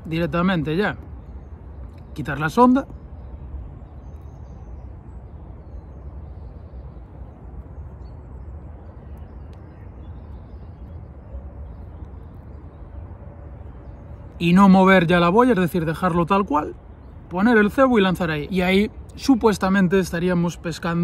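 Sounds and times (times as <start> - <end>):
low outdoor rumble: 0.0 - 21.0
faint clicks: 9.1 - 9.8.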